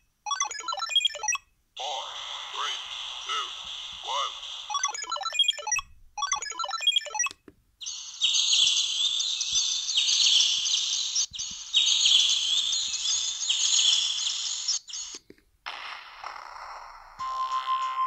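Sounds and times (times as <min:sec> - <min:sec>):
electronic beeping ringtone: 0:00.3 - 0:01.5, 0:04.7 - 0:07.3, 0:16.6 - 0:18.0
synthesized bird chirp ringtone: 0:00.3 - 0:01.5, 0:04.2 - 0:15.2, 0:17.2 - 0:18.0.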